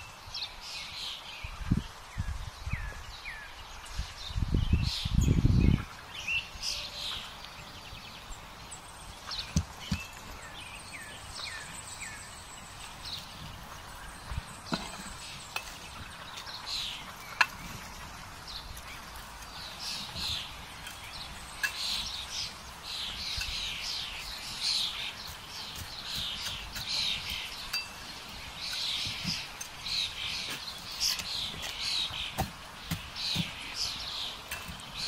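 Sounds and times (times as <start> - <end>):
birds singing: 0.0 - 35.0
shovel knocking burning logs: 9.1 - 12.1, 12.8 - 22.6, 23.3 - 35.0.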